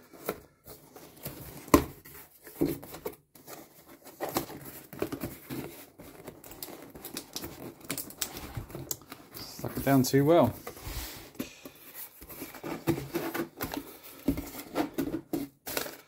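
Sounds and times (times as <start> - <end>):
packing paper crinkling: 3.4 - 10.7, 15.6 - 16.0.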